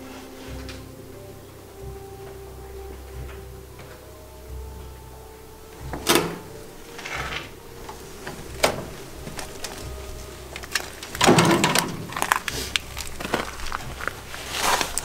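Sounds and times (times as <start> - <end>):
footsteps crunching over rubble: 7.0 - 15.0.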